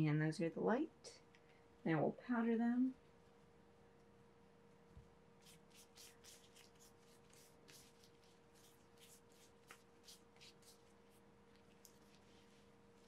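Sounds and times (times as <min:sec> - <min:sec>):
sponge brushing and dabbing: 0:05.4 - 0:13.0.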